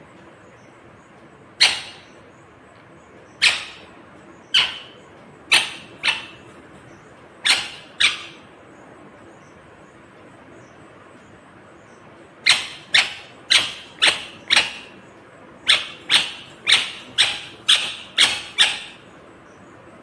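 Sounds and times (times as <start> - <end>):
parakeet calling: 1.4 - 8.8, 11.8 - 19.8.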